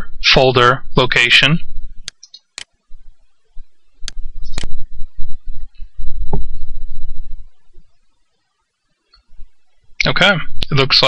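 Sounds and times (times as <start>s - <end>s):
low microphone rumble: 0.0s - 2.1s, 2.8s - 8.1s, 9.3s - 11.0s
computer mouse clicks: 2.0s - 2.7s.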